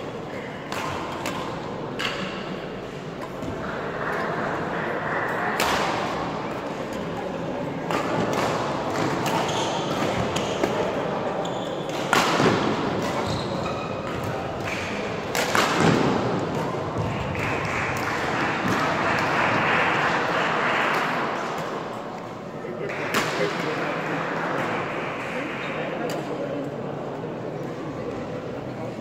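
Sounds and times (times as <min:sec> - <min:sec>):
faint murmuring voices: 0:00.0 - 0:29.0
racket striking shuttlecock: 0:00.7 - 0:02.6, 0:14.0 - 0:17.1.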